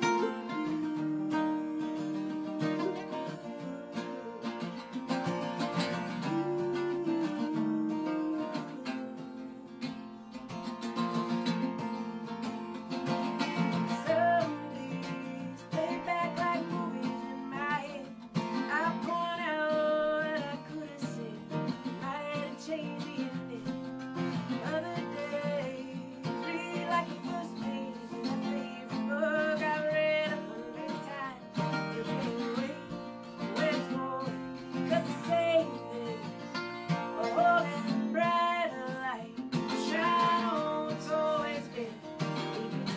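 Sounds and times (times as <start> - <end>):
woman singing: 0.0 - 10.9, 11.5 - 42.9
octave mandolin: 0.0 - 42.9
strummed acoustic guitar: 0.0 - 42.9.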